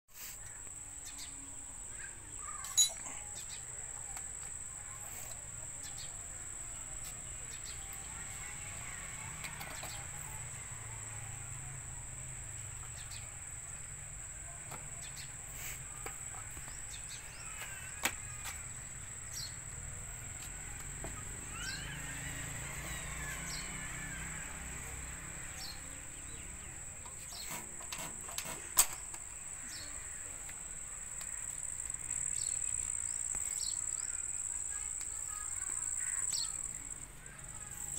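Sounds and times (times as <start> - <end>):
birds chirping: 28.6 - 37.9.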